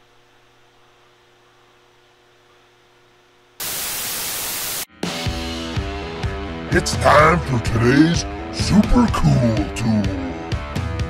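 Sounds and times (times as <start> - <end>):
faint electrical hum: 0.0 - 4.8
static hiss burst: 3.6 - 4.9
guitar music: 4.9 - 11.0.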